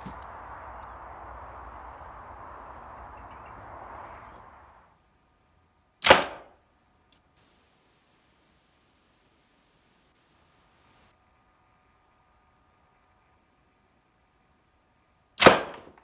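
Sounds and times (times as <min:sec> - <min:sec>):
high electronic charging whine: 0:00.0 - 0:06.1, 0:07.1 - 0:15.4
coil gun firing crack: 0:06.0 - 0:06.6, 0:15.4 - 0:16.0.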